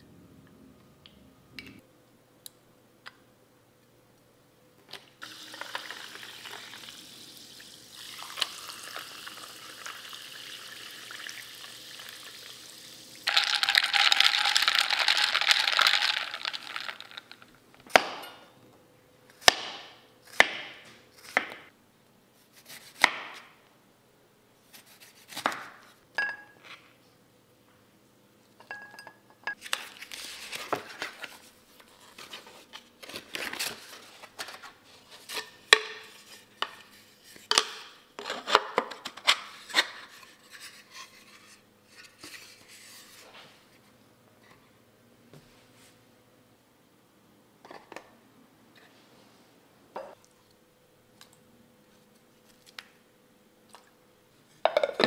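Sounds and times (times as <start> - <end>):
carbonated water fizzing over ice: 5.2 - 17.2.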